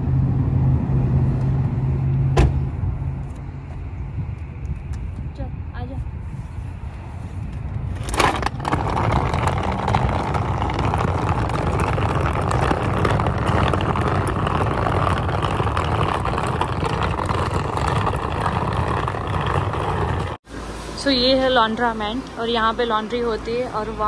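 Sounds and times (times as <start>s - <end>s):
cart wheels rattling on asphalt: 7.8s - 20.4s.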